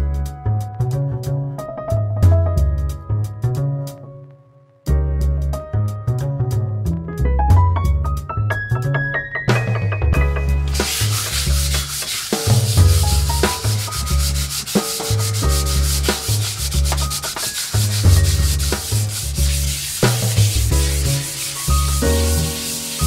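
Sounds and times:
hand sanding wood: 10.6s - 23.0s.

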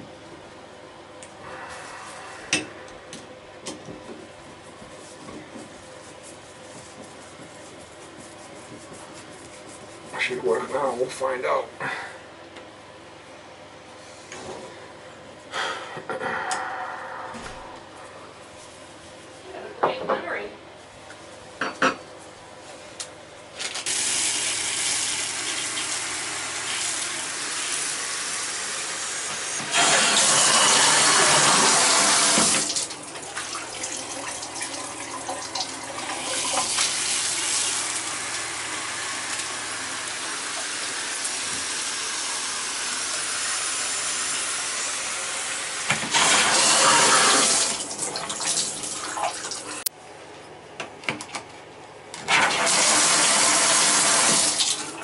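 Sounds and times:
shower water running hard: 23.8s - 49.8s, 52.3s - 55.0s.

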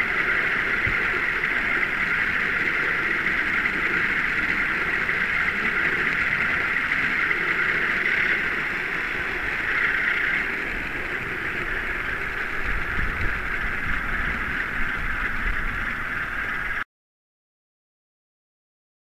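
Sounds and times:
model train wheels rolling on track: 0.0s - 16.8s.

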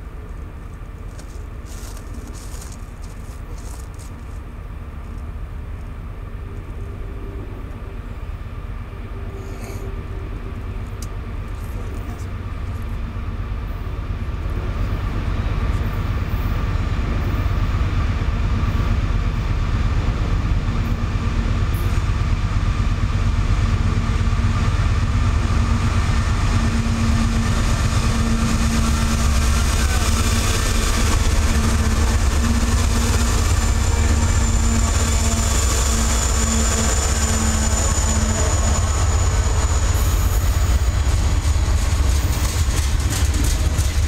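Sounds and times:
locomotive engines rumbling: 0.0s - 44.0s.

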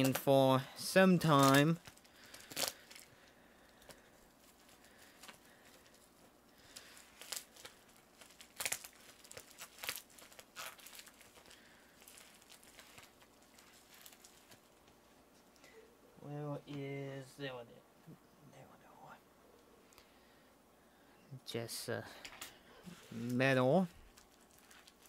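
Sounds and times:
plastic bag crinkling and tearing: 0.0s - 15.0s, 23.9s - 25.0s.

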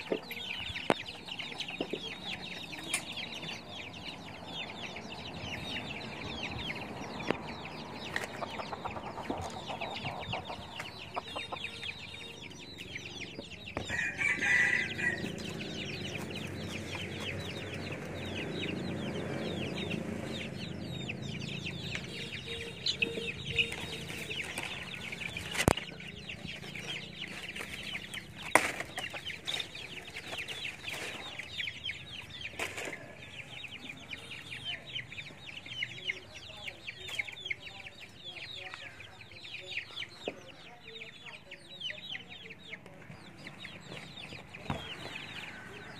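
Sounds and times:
chickens clucking: 0.0s - 45.9s.

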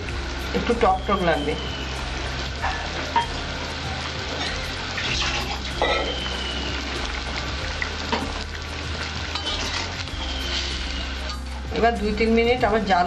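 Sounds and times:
curry simmering and sizzling: 0.0s - 13.0s.

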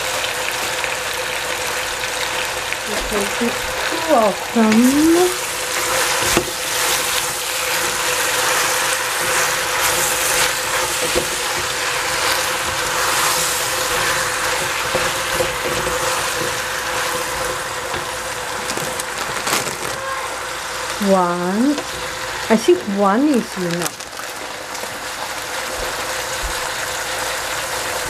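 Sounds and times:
vegetables sizzling in a pot: 0.0s - 28.0s
wooden spatula scraping a pot: 4.6s - 20.0s.

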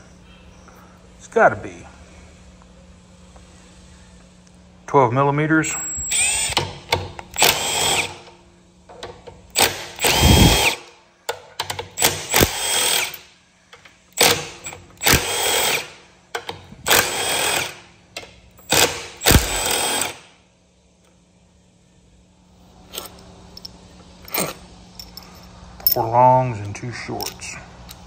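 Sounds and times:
cordless power driver whining: 5.9s - 6.7s, 7.3s - 8.3s, 9.5s - 10.9s, 12.0s - 13.2s, 18.6s - 20.2s.

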